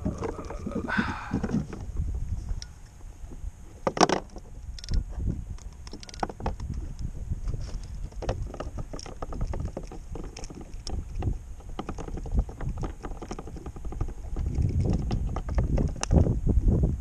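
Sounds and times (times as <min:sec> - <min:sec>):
low wind rumble: 0:00.0 - 0:17.0.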